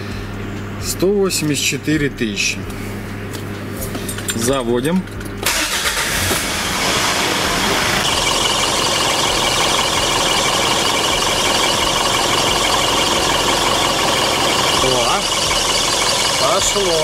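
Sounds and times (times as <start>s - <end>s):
car engine starting and idling: 5.4s - 17.0s.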